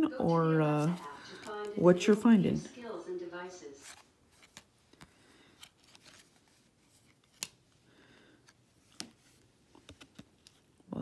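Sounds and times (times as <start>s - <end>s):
trading cards rustling: 0.6s - 2.4s, 3.8s - 10.9s
sharp card clicks: 7.2s - 7.6s.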